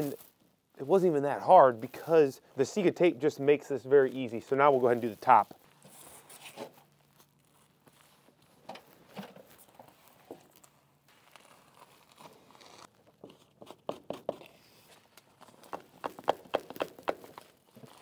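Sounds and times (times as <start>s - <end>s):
tape crinkling and tearing: 4.1s - 13.3s, 14.9s - 18.0s.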